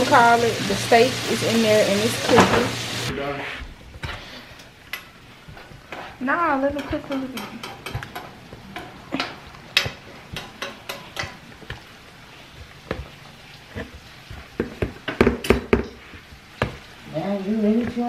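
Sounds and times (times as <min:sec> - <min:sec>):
potato masher knocks and squelches: 0:13.8 - 0:16.0.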